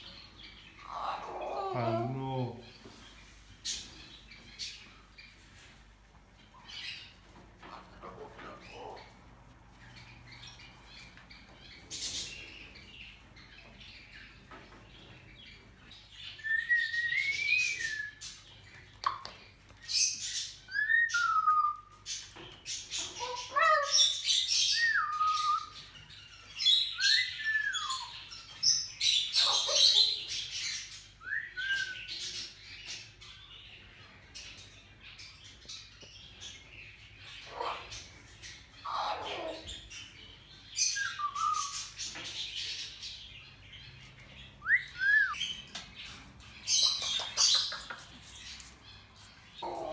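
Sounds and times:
cockatoo squawking: 23.0 - 24.1, 38.8 - 39.7, 49.6 - 49.9.

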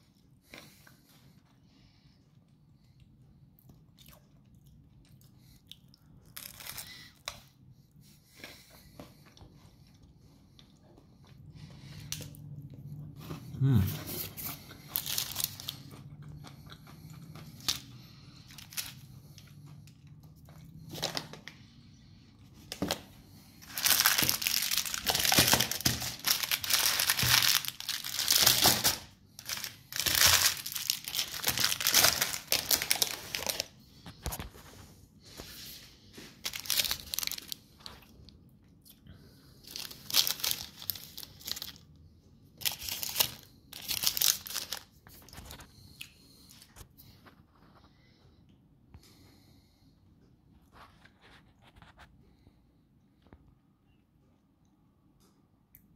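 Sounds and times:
plastic candy wrappers crinkling: 6.2 - 7.4, 14.3 - 16.2, 17.2 - 21.6, 22.6 - 34.6, 36.2 - 38.1, 39.6 - 42.0, 42.6 - 45.7.

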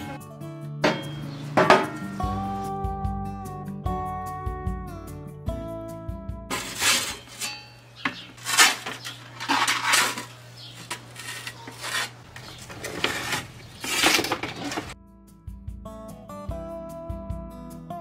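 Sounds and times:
utensils scraping and clinking dishes: 6.5 - 15.0.

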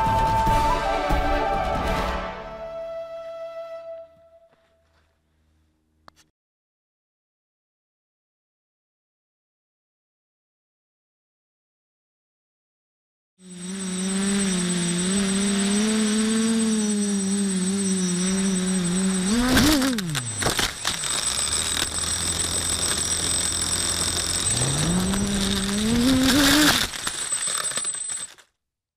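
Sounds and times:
quadcopter motors humming: 13.4 - 28.4
thin high-pitched whine: 13.4 - 28.4.

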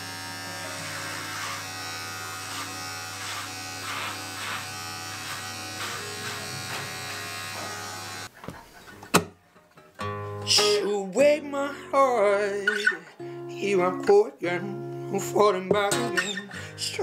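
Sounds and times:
electric hair clippers buzzing: 0.0 - 8.3.

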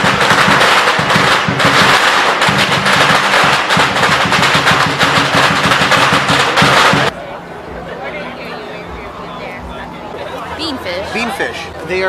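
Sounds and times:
firecrackers popping: 0.0 - 7.2
percussion beating: 0.0 - 7.2.

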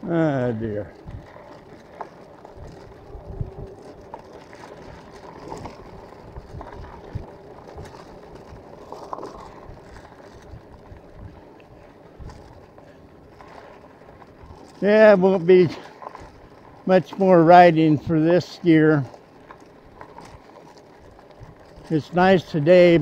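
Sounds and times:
wind buffeting microphone: 0.0 - 16.8, 19.0 - 23.0
electric bike motor whine: 0.1 - 14.8.

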